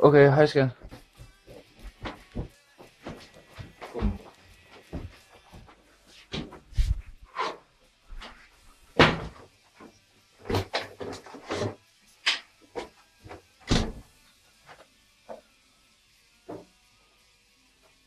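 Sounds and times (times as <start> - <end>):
refrigerator door knocks and thuds: 9.0 - 9.4, 13.7 - 14.0.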